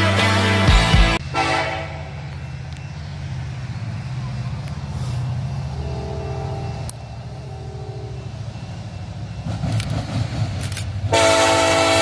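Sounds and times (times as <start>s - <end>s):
diesel locomotive engine: 0.0s - 12.0s
train air horn blast: 1.2s - 2.2s, 5.8s - 6.9s, 11.0s - 12.0s.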